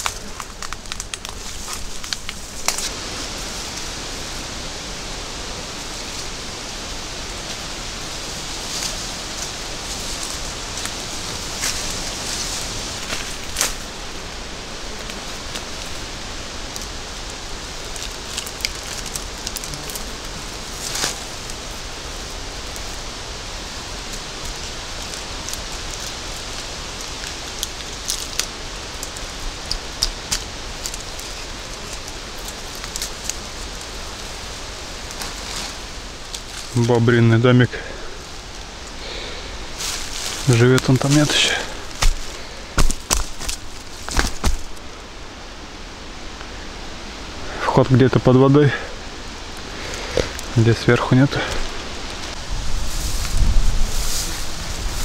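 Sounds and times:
leaves rustling hiss: 0.0s - 55.0s
person moving through undergrowth: 0.0s - 55.0s
hands clicking on tree bark: 25.1s - 33.4s, 41.9s - 44.8s.

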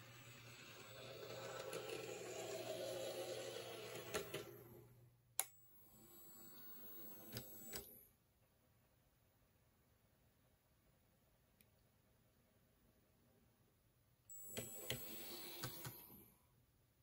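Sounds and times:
small electric motor whirring: 0.0s - 4.8s, 5.9s - 8.0s, 14.3s - 16.1s
turntable motor whirring: 0.0s - 4.8s, 5.4s - 8.0s, 14.3s - 16.2s.

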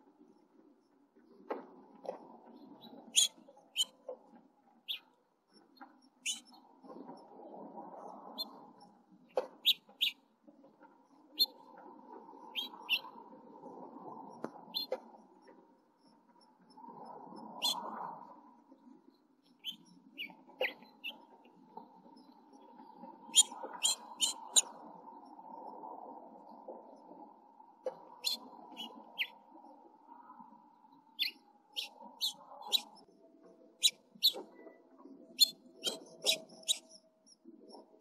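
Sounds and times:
high bird chirps: 3.2s - 3.9s, 6.2s - 6.5s, 9.6s - 10.2s, 11.4s - 11.6s, 12.6s - 13.1s, 19.5s - 21.2s, 23.3s - 24.7s, 28.2s - 29.4s, 31.2s - 33.0s, 33.8s - 34.4s, 35.4s - 37.0s.

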